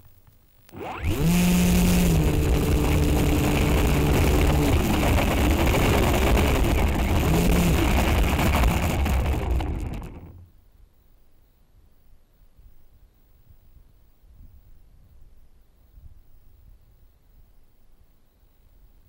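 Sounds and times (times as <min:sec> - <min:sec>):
drone motors whining: 0:00.7 - 0:10.4.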